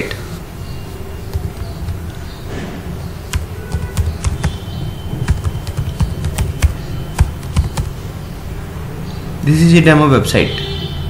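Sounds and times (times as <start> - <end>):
keyboard typing clicks: 1.3 - 2.2, 3.3 - 8.0.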